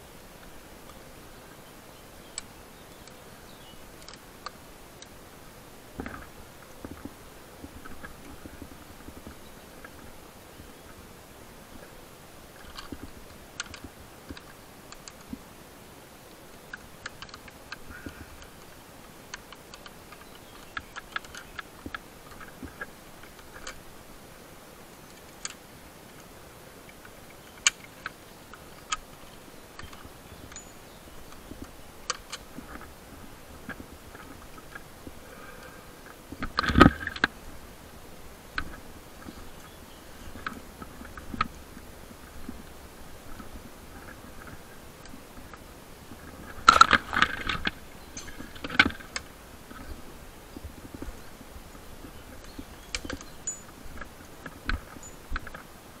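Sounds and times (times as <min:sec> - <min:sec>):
light clicks and rustling: 0:05.9 - 0:10.2, 0:11.7 - 0:15.4, 0:16.2 - 0:24.1, 0:24.8 - 0:37.6, 0:38.4 - 0:55.9.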